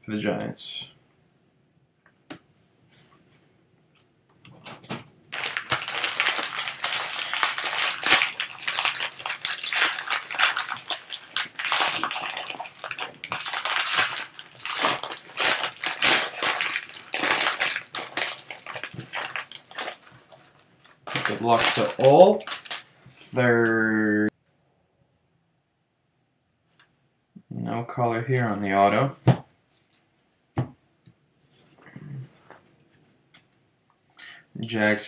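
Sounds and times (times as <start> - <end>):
foil wrapper crinkling: 5.3 - 22.9.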